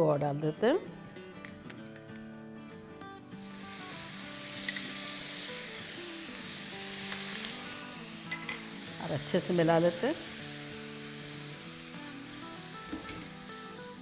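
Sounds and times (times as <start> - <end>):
water sizzling in hot oil: 3.4 - 14.0.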